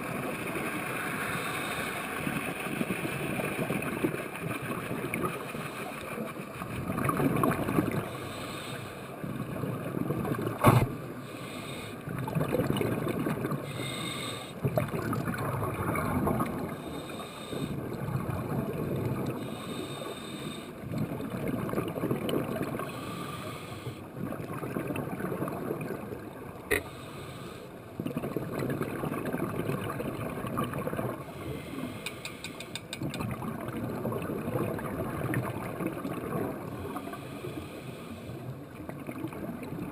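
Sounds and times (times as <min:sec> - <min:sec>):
underwater bubbles gurgling: 0:00.0 - 0:39.9
sharp clicks: 0:32.0 - 0:33.2.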